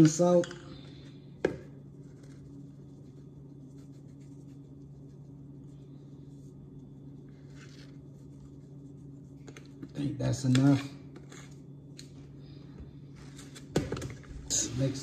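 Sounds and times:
steady low hum: 0.0 - 15.0
scratchy powder rustling: 1.8 - 10.0.

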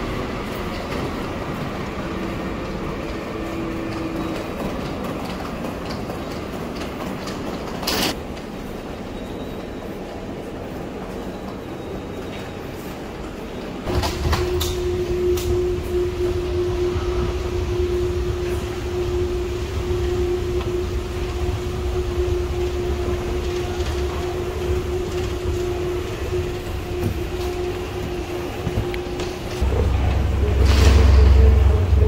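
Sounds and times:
machinery rumble and hum: 13.9 - 32.0.

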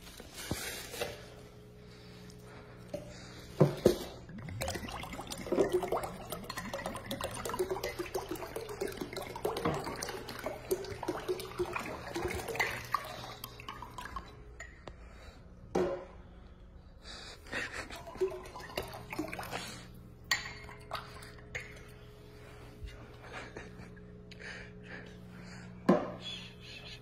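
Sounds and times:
liquid glugging from a bottle: 3.6 - 14.5, 18.0 - 21.9.

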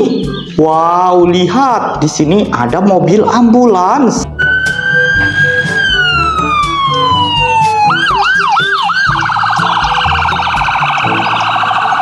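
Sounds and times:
ambulance siren: 4.3 - 12.0.

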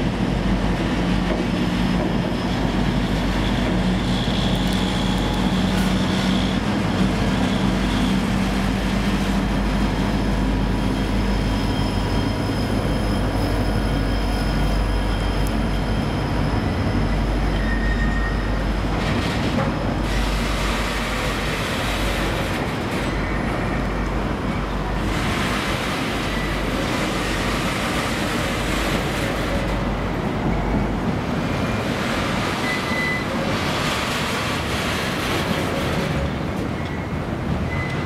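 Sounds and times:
steel wheels rumbling on rail: 0.0 - 38.0
high wheel squeals: 10.8 - 18.8, 32.4 - 33.6, 36.7 - 38.0.

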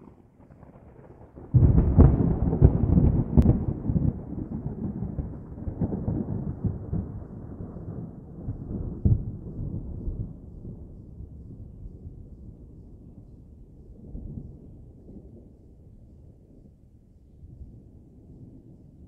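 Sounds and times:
distant thunder rumbling: 0.0 - 13.6.

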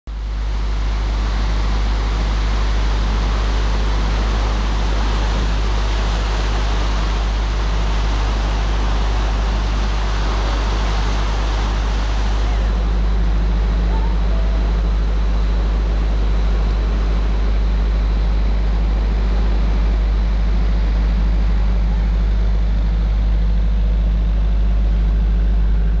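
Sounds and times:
deep rumble: 0.2 - 26.0
water rushing through dam gates: 0.8 - 19.5.

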